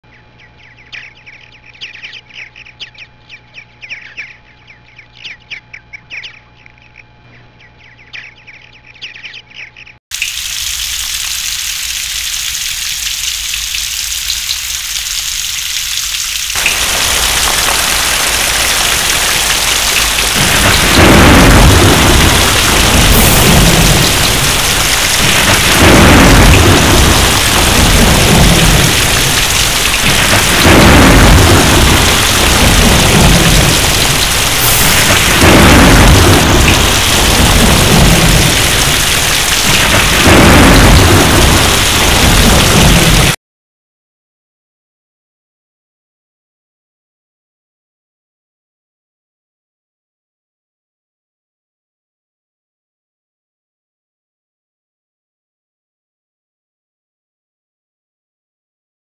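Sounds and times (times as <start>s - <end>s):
birds chirping: 0.0s - 10.0s
steady rain: 10.1s - 43.4s
rolling thunder: 16.6s - 43.4s.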